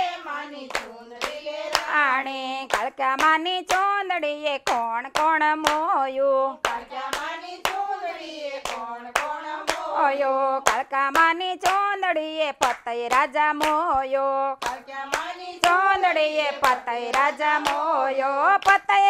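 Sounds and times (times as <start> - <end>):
women singing in unison: 0.0 - 19.0
hands clapping in time: 0.7 - 2.0, 2.7 - 4.0, 4.6 - 5.9, 8.6 - 10.0, 10.6 - 12.0, 12.6 - 17.9, 18.6 - 19.0.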